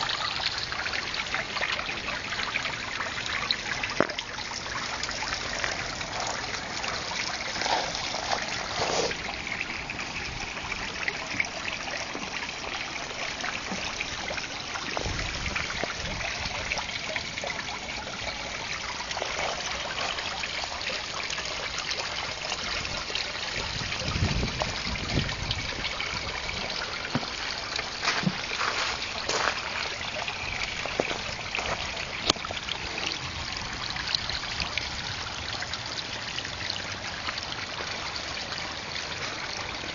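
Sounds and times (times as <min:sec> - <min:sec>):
water feature trickling: 0:00.0 - 0:39.9.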